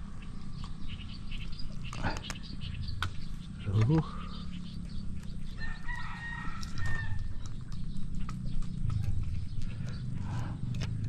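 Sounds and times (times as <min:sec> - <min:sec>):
steady low rumble: 0:00.0 - 0:11.0
rooster crowing: 0:05.6 - 0:07.4.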